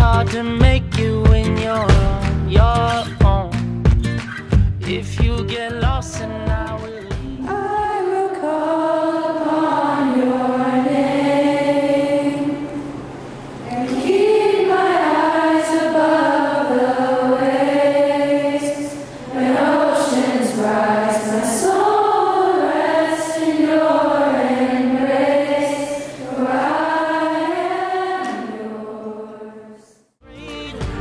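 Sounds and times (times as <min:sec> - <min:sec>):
girls singing a hymn in unison: 0:07.4 - 0:30.0
music track: 0:30.2 - 0:31.0.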